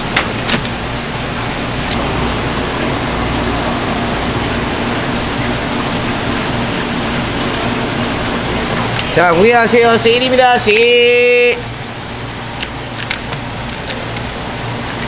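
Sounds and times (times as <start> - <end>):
running water rushing: 1.1 - 12.5.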